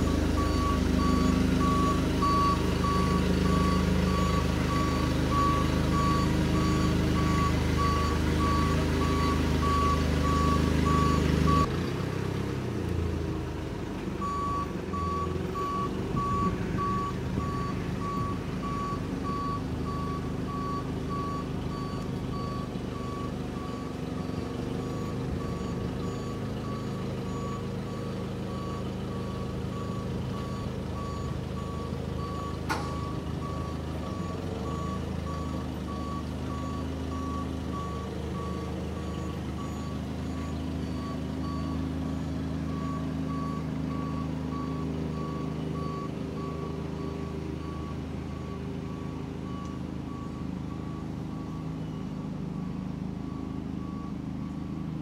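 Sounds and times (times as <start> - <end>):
forklift backup alarm beeping: 0.0 - 11.8, 14.2 - 55.0
forklift engine running: 0.0 - 55.0
sharp click: 32.7 - 33.0.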